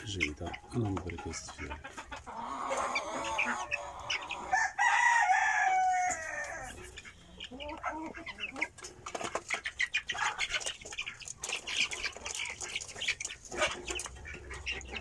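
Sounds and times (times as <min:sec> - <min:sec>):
chicks cheeping and clucking: 0:00.0 - 0:15.0
rooster crowing: 0:04.4 - 0:06.7.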